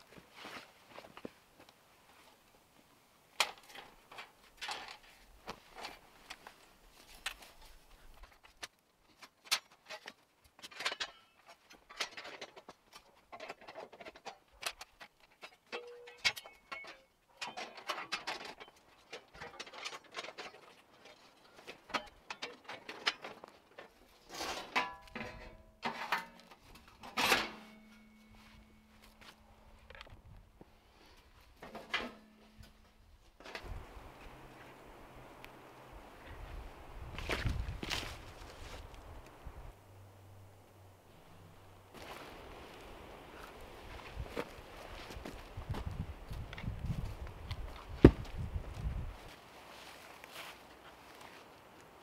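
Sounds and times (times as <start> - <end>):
metal panels clinking and scraping: 3.4 - 6.4, 7.0 - 30.2, 31.5 - 34.5.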